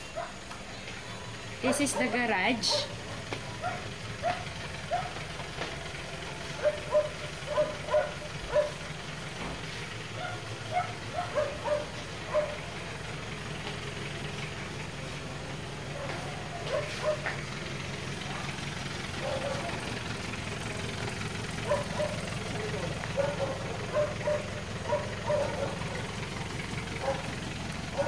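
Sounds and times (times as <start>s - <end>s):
dog barking: 0.1s - 0.4s, 1.6s - 5.3s, 6.5s - 8.9s, 10.1s - 12.7s, 15.9s - 17.4s, 19.2s - 19.8s, 21.6s - 26.2s, 27.0s - 28.0s.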